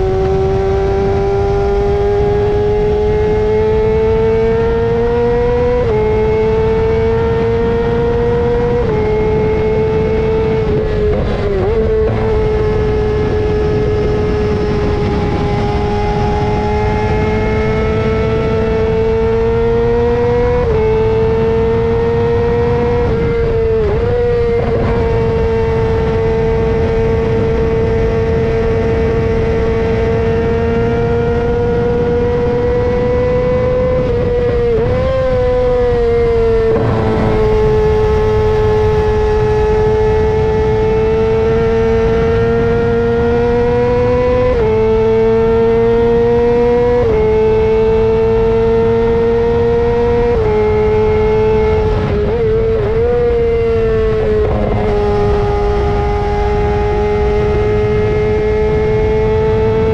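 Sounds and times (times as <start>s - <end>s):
motorcycle engine at high revs: 0.0s - 59.9s.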